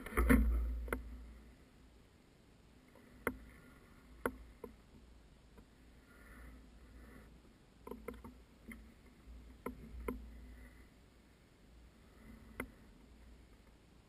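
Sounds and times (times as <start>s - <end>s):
low outdoor rumble: 0.0s - 14.0s
faint sharp clicks: 12.5s - 12.8s.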